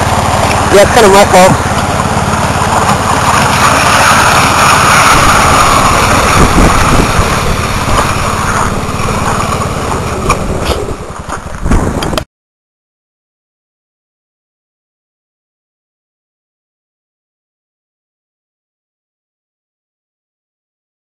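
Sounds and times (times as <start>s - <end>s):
skis scraping on gravel: 0.0s - 12.1s
snowmobile engine running: 0.0s - 12.2s.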